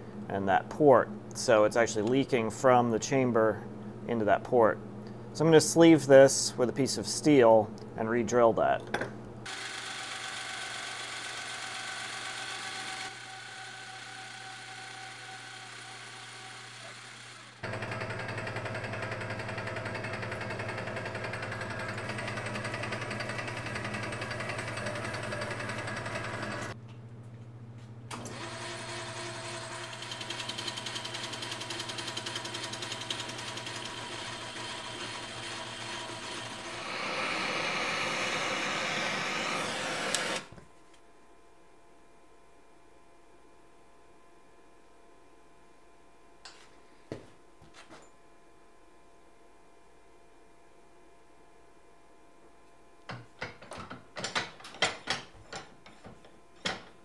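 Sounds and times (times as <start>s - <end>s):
metal lathe motor hum: 9.5s - 26.8s, 28.1s - 40.5s
propane torch hissing: 36.7s - 40.5s.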